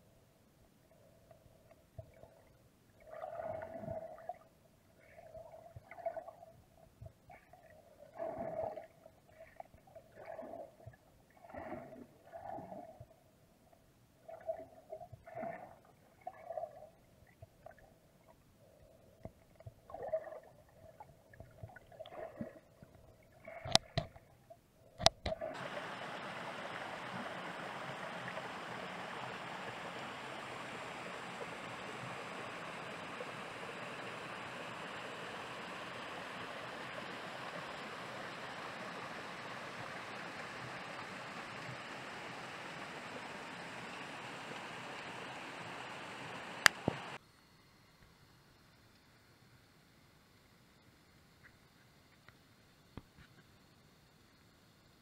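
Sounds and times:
faint steady hum: 0:00.0 - 0:55.0
underwater gurgling and bubbling: 0:03.0 - 0:06.6, 0:07.3 - 0:13.2, 0:14.2 - 0:17.0, 0:19.4 - 0:24.2, 0:24.9 - 0:47.2
river water rushing: 0:25.4 - 0:47.2.

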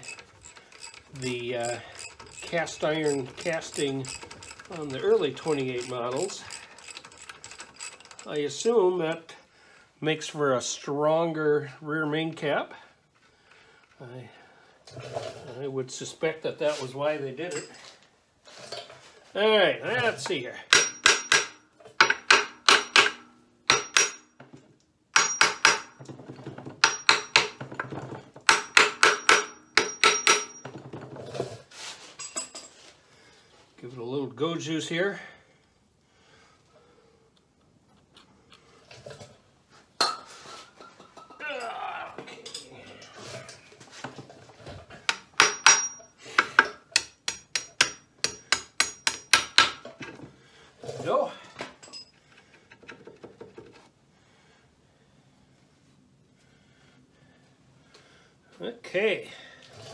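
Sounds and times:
hammer striking metal: 0:20.7 - 0:24.4, 0:25.1 - 0:26.0, 0:26.8 - 0:27.6, 0:28.4 - 0:30.7, 0:45.1 - 0:49.8.

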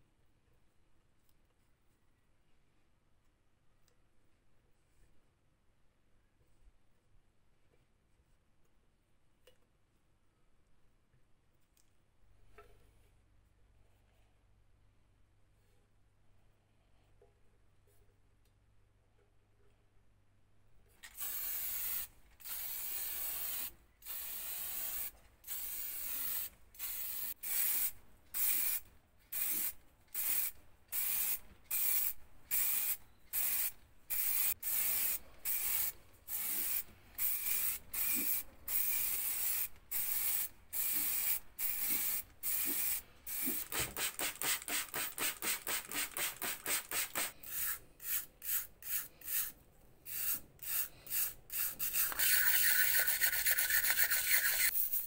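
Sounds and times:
spray paint can hissing: 0:21.0 - 0:49.5, 0:50.1 - 0:55.0.

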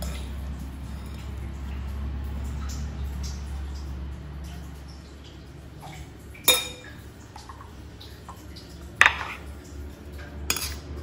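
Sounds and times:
ladle clinking against dishes: 0:06.4 - 0:07.0, 0:09.0 - 0:09.5, 0:10.5 - 0:10.9.

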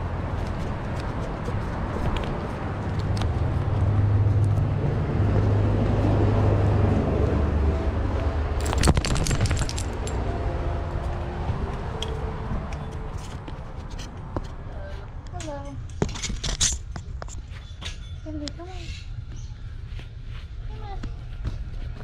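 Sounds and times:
metal clips clinking and jingling: 0:08.6 - 0:10.2.

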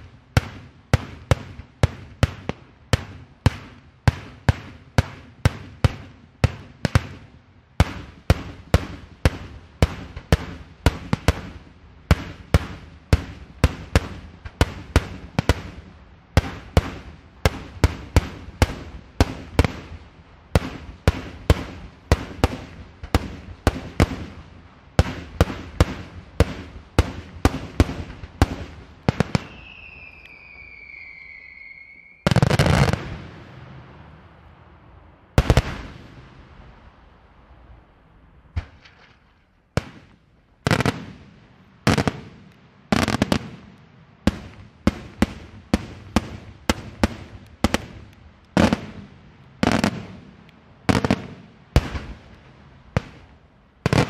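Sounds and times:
fireworks bangs: 0:00.0 - 0:43.7, 0:44.3 - 0:54.0
firework whistle: 0:29.2 - 0:33.2.

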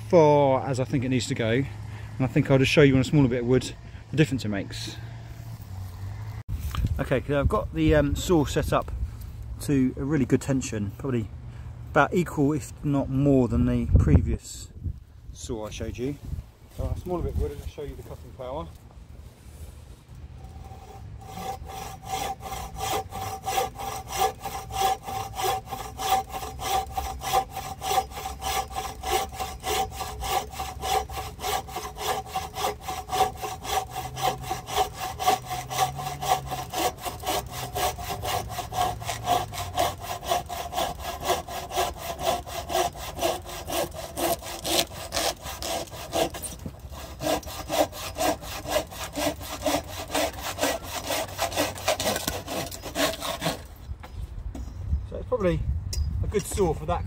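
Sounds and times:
bow saw cutting wood: 0:20.4 - 0:53.7.

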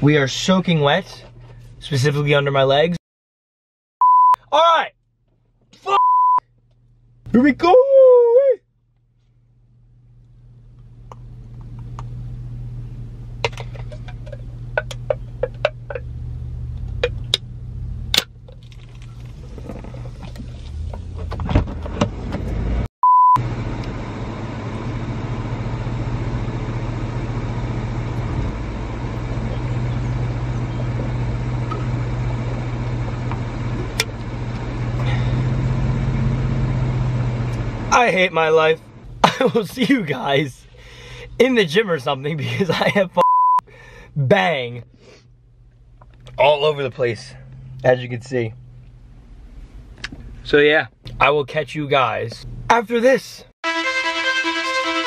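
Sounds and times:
short one-tone beep: 0:04.0 - 0:04.4, 0:06.0 - 0:06.4, 0:23.0 - 0:23.4, 0:43.2 - 0:43.6
car engine idling: 0:08.8 - 0:22.7, 0:23.4 - 0:43.0, 0:44.8 - 0:51.3.

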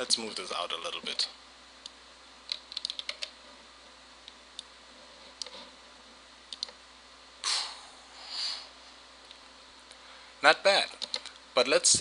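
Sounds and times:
mouse and keyboard clicks: 0:02.5 - 0:03.3, 0:06.5 - 0:06.8, 0:11.0 - 0:11.4
breath-like noise: 0:07.4 - 0:08.8.

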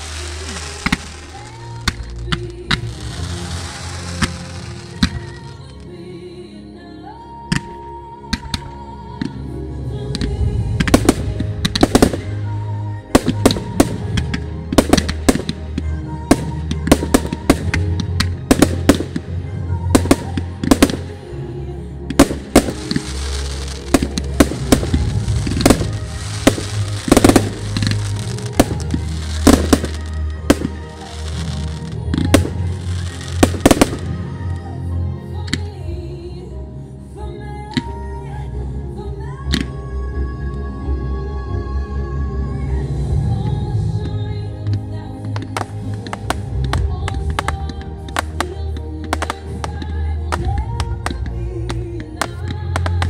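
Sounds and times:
fireworks bangs: 0:00.0 - 0:05.6, 0:22.2 - 0:34.4.

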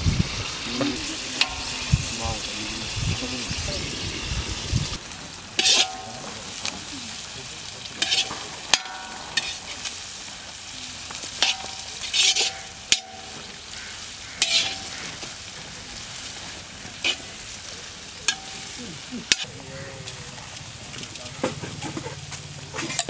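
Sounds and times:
food sizzling in hot oil: 0:00.0 - 0:23.0
metal spatula scraping iron pan: 0:01.0 - 0:01.9, 0:05.6 - 0:06.4, 0:08.0 - 0:10.0, 0:11.4 - 0:13.5, 0:14.4 - 0:15.3, 0:17.0 - 0:17.4, 0:18.3 - 0:19.5.

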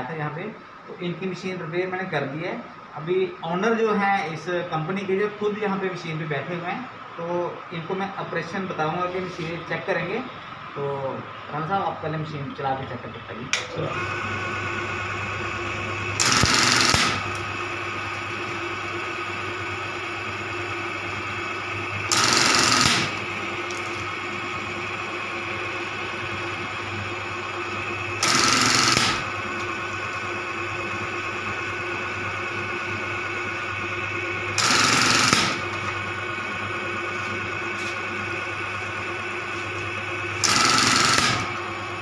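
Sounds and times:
sewing machine motor humming: 0:13.6 - 0:42.0
rapid machine stitching: 0:15.6 - 0:24.2, 0:27.7 - 0:35.9, 0:40.3 - 0:42.0.

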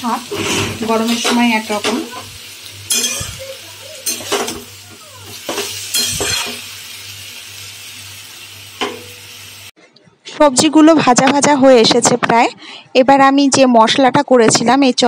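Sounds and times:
vegetables sizzling in a wok: 0:00.0 - 0:09.8
spatula scraping a pan: 0:00.3 - 0:01.6.

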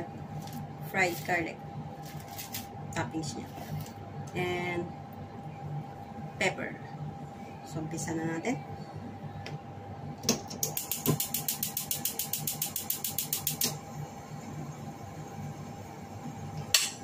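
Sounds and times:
gas stove igniter clicking: 0:10.2 - 0:13.8.

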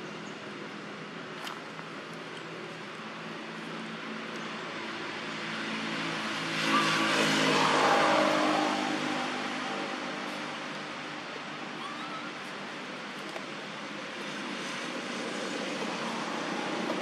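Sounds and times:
vehicle engine passing by: 0:04.8 - 0:11.7.

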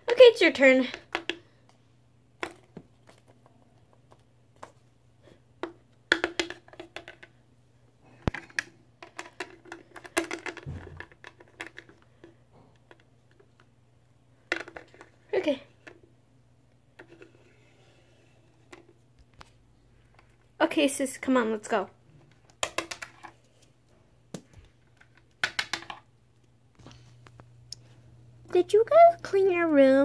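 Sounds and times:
faint steady hum: 0:00.0 - 0:30.0
plastic toys clicking and tapping: 0:05.6 - 0:07.4, 0:08.2 - 0:13.7, 0:14.5 - 0:16.0, 0:22.3 - 0:23.4, 0:24.3 - 0:26.5.

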